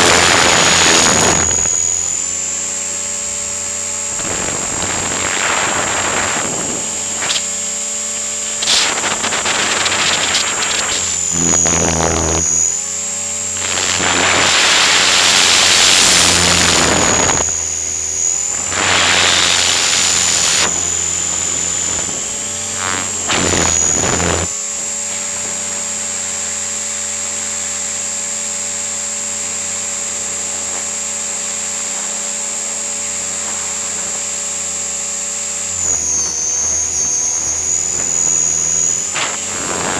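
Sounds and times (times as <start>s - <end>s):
electric motor whining: 0.0s - 39.9s
wind noise rushes: 4.1s - 7.6s, 8.4s - 11.1s.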